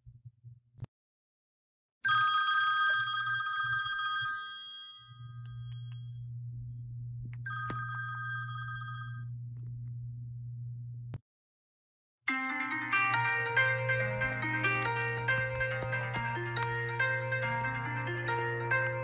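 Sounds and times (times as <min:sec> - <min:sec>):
bell-like phone ringtone: 0:02.0 - 0:06.3, 0:07.5 - 0:09.3
steady low hum: 0:05.7 - 0:11.2.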